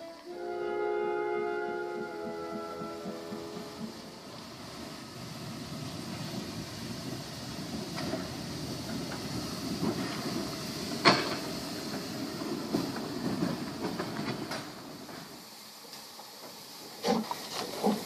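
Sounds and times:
steam locomotive exhaust: 0.0 - 18.0
clatter of wheels and rods: 7.7 - 15.3, 15.9 - 18.0.

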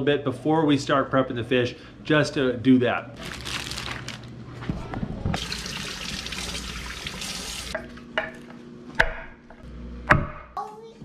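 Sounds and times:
plastic bag rustling: 3.2 - 4.7
faucet water running into sink: 5.4 - 7.8.

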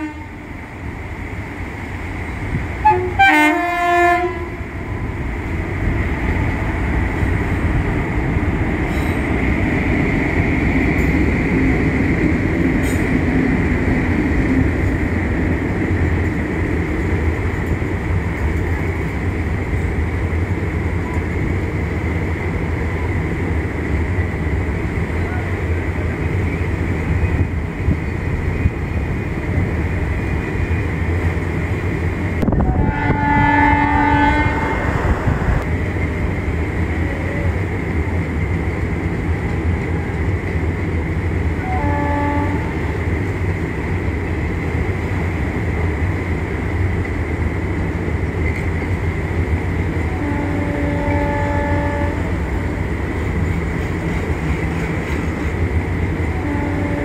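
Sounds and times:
locomotive horn blasts: 0.0 - 0.4, 2.8 - 4.7, 32.5 - 34.9, 41.6 - 43.0, 50.2 - 52.4, 56.4 - 57.0
train rumbling: 0.0 - 57.0.

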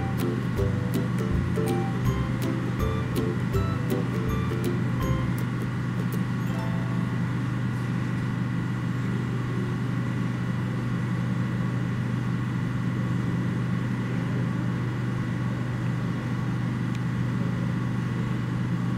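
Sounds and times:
faint high steady tones: 0.0 - 7.8
low mechanical hum: 0.0 - 18.9.

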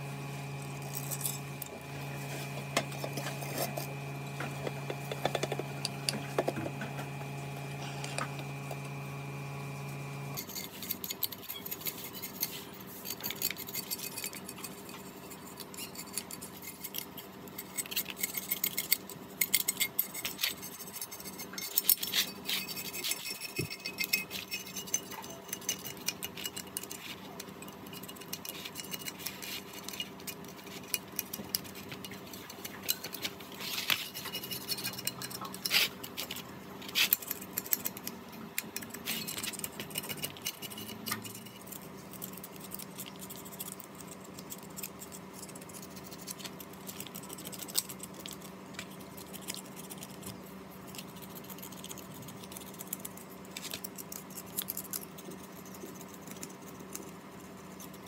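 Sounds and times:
faint steady hum: 0.0 - 58.0
metal tools clicking and clinking: 10.3 - 42.8.

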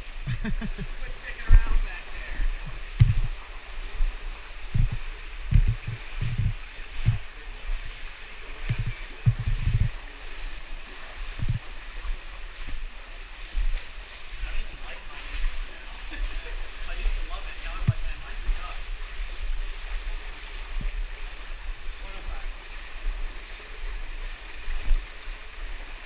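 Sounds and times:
stream rushing: 0.0 - 26.0
low thumps and knocks: 2.5 - 3.4, 4.0 - 7.3, 8.6 - 10.0, 11.4 - 11.6.

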